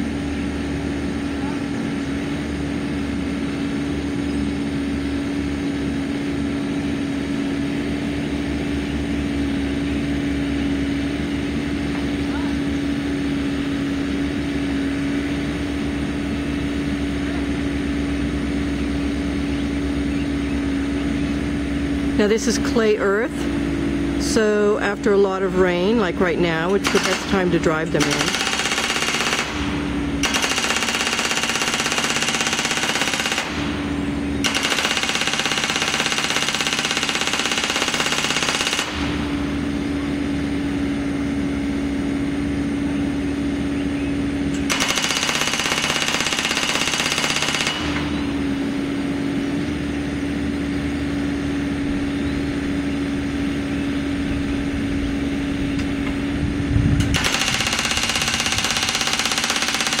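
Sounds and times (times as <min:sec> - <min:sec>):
excavator engine: 0:00.0 - 1:00.0.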